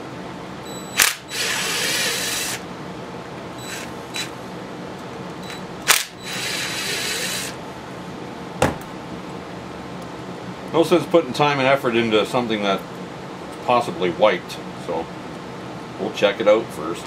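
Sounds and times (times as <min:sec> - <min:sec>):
cordless drill spinning: 0:01.0 - 0:02.6, 0:03.6 - 0:04.3, 0:05.9 - 0:07.6.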